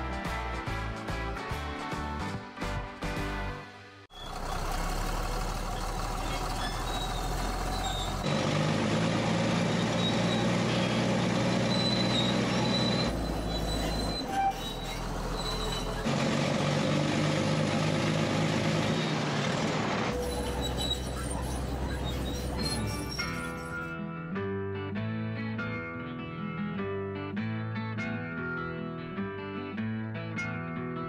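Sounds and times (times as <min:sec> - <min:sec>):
bulldozer diesel engine running: 0:04.1 - 0:23.9.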